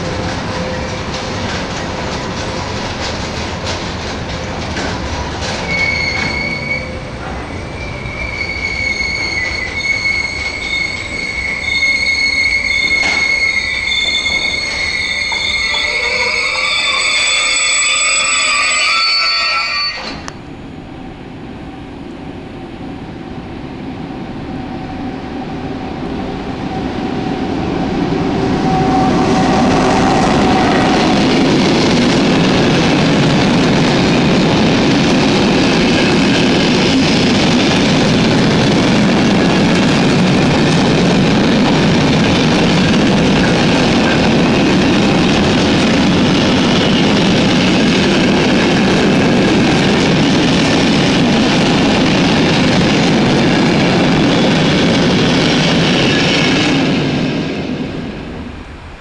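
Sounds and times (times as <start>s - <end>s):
wagons rattling over rails: 0.0s - 9.5s, 29.5s - 57.0s
freight train passing: 0.0s - 59.0s.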